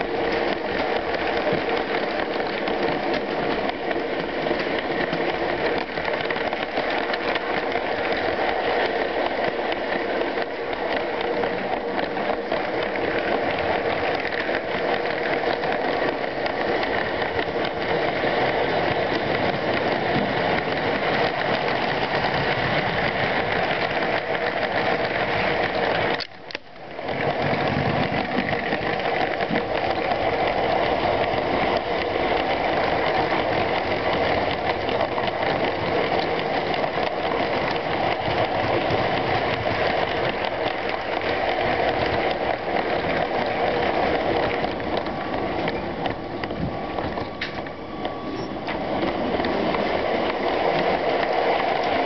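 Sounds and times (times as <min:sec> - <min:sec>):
toy train whirring clatter: 0:00.0 - 0:52.0.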